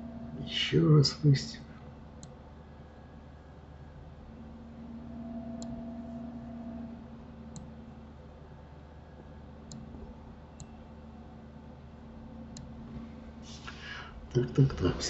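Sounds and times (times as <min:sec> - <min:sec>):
held low tone: 0:00.0 - 0:02.0, 0:02.6 - 0:11.2
low background hum: 0:00.0 - 0:15.0.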